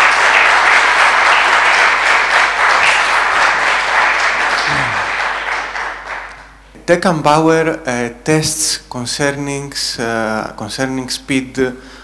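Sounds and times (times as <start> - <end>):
audience applauding: 0.0 - 6.6.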